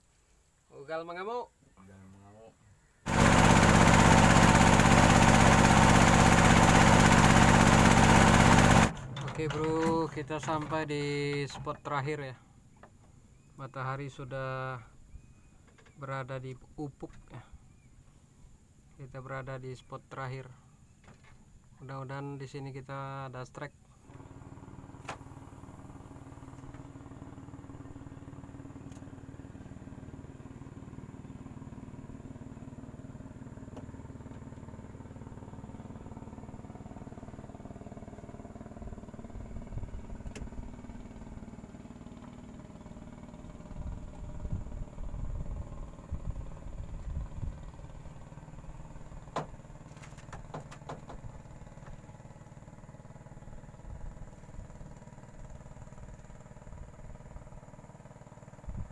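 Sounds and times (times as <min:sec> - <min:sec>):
boat engine running: 0:03.1 - 0:11.9, 0:24.0 - 0:58.9.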